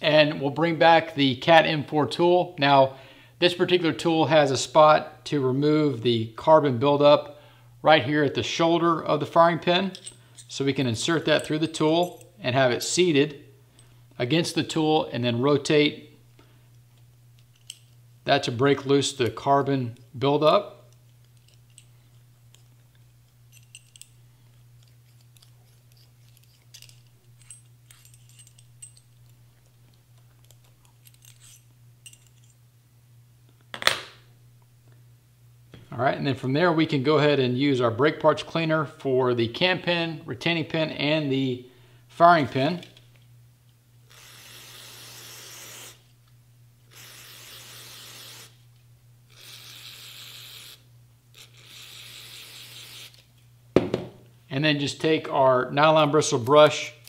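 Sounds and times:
steady low hum: 0:00.0 - 0:57.0
small metal clicks and scrapes: 0:24.8 - 0:32.6
aerosol can spraying: 0:44.1 - 0:46.1, 0:46.9 - 0:48.6.

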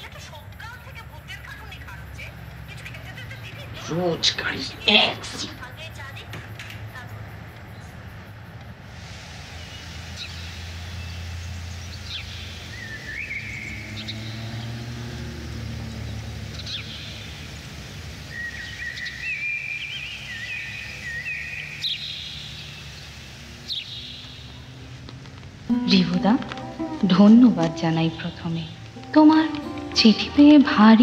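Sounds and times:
sparrow chirping: 0:00.0 - 0:08.6, 0:09.6 - 0:24.9.

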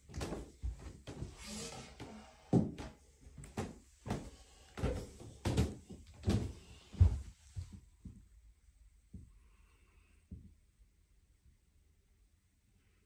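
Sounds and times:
footsteps on carpeted stairs: 0:00.0 - 0:08.2.

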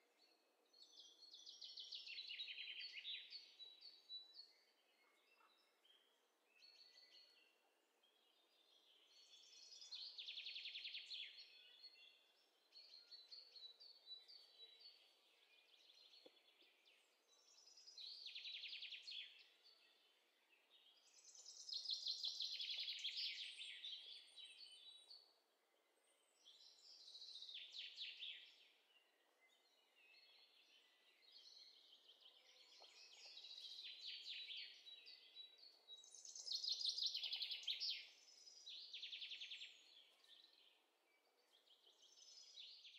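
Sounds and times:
birds chirping and trilling: 0:26.0 - 0:42.9.

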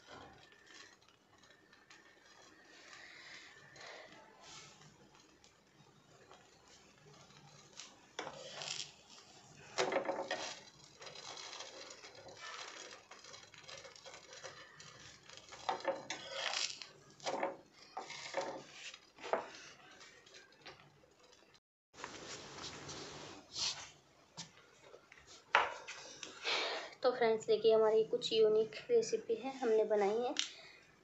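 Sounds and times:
utensil scraping on a griddle: 0:00.0 - 0:05.5, 0:06.2 - 0:20.5.

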